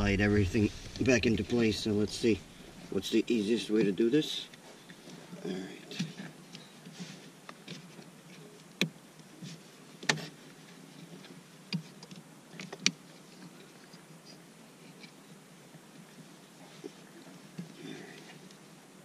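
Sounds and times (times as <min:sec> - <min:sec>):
faint rubbing: 0:00.0 - 0:03.1.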